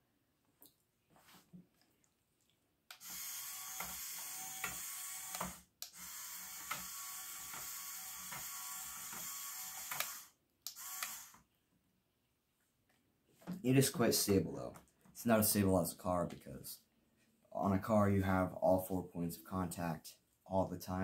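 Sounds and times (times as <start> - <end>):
toy motor whirring through gears: 2.9 - 11.4.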